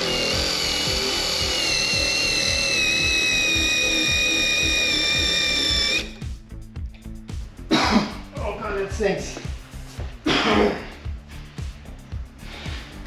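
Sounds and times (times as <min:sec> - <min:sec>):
power drill high whine: 0:00.0 - 0:06.2.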